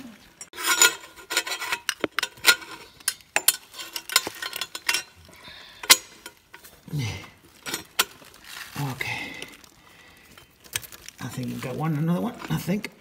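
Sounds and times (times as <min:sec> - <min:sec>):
metal scraping and rubbing: 0:00.0 - 0:06.9.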